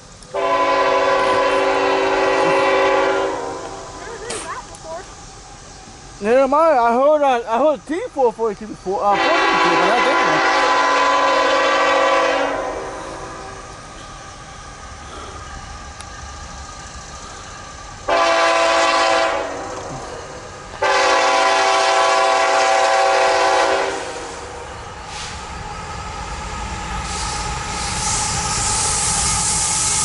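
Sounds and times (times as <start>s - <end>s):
train rumble: 0.0s - 30.0s
locomotive air horn: 0.3s - 3.9s, 9.1s - 13.6s, 18.1s - 19.7s, 20.8s - 24.4s.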